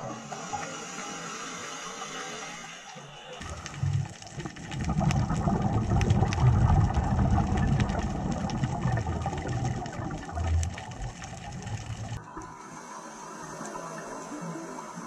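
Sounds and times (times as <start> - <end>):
low underwater rumbling: 3.4 - 12.3
scattered underwater clicks: 3.4 - 12.5.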